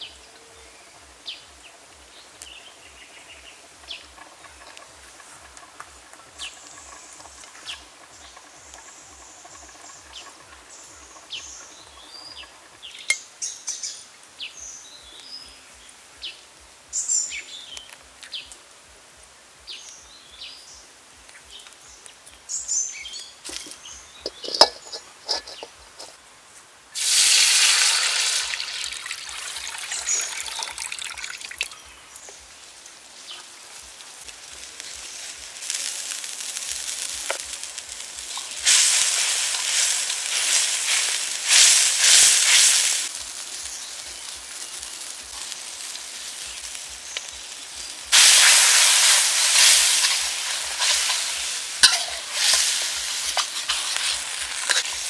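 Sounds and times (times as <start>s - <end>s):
birds chirping: 0.0s - 18.6s, 19.6s - 26.2s, 28.1s - 35.8s, 43.1s - 55.0s
plate clinking: 23.5s - 26.2s, 50.8s - 54.9s
liquid hissing in hot wok: 26.9s - 31.7s, 33.8s - 55.0s.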